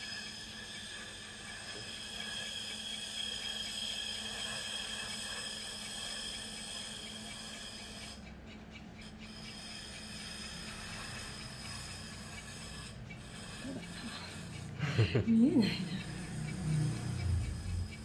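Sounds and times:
trimming tool scraping clay: 0.0s - 8.3s, 9.0s - 14.8s
pottery wheel motor hum: 0.0s - 18.0s.

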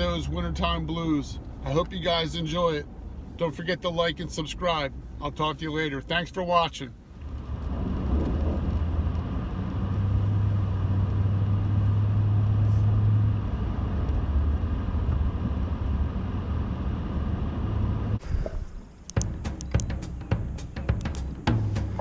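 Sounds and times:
truck engine and road noise: 0.0s - 22.0s
low hum: 7.3s - 22.0s.

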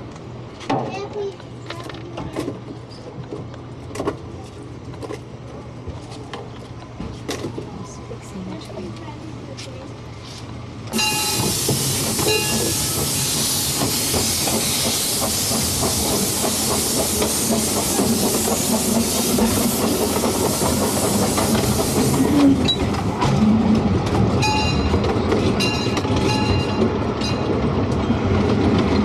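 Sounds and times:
steam locomotive hissing: 10.9s - 22.8s
train wheels clattering: 10.9s - 29.0s.

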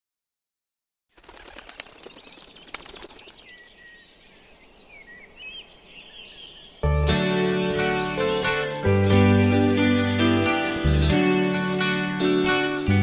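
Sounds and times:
birds chirping: 1.2s - 12.8s
whistled bird calls: 1.7s - 6.8s.

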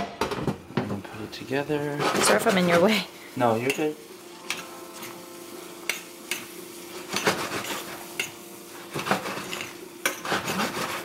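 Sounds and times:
metal spoon scraping a skillet: 1.8s - 2.9s, 3.6s - 11.0s.

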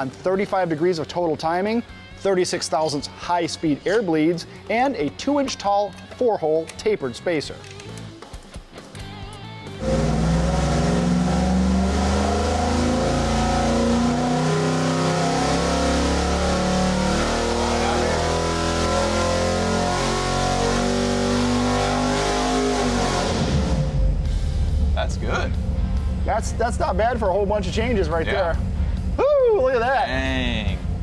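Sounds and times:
engine revving at full throttle: 9.8s - 24.4s.

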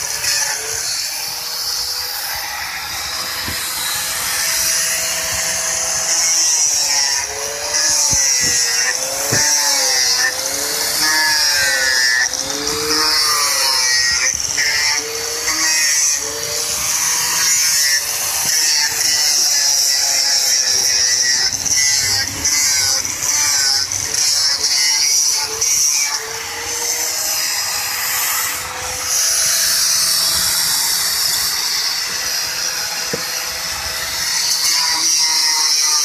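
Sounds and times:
angle grinder sanding wood: 0.0s - 36.0s.

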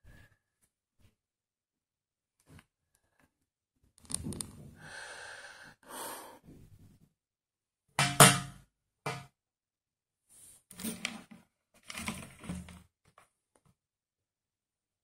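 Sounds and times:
man breathing: 4.7s - 6.5s.

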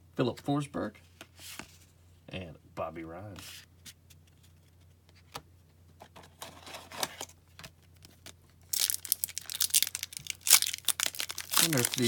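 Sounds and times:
foil wrapper tearing and crinkling: 8.6s - 12.0s.

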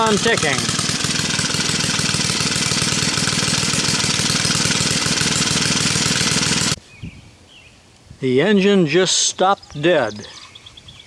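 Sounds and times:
small gasoline engine running: 0.0s - 6.8s.

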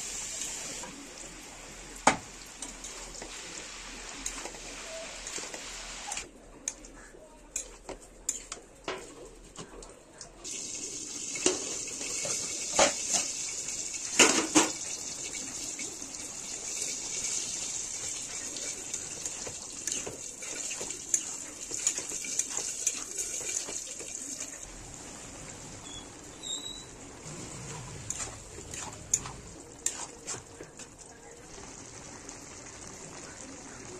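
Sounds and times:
mushrooms sizzling and bubbling: 0.0s - 6.3s, 10.4s - 33.9s.

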